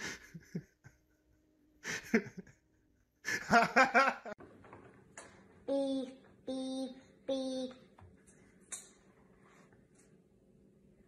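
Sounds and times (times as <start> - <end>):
person laughing: 0.0 - 1.2, 1.8 - 4.4.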